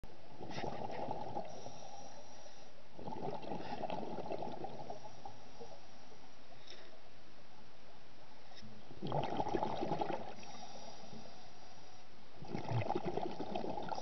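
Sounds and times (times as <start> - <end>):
muffled underwater hiss: 0.2 - 14.0
underwater exhaust bubbles: 0.3 - 2.3, 2.9 - 6.0, 8.9 - 11.7, 12.4 - 14.0.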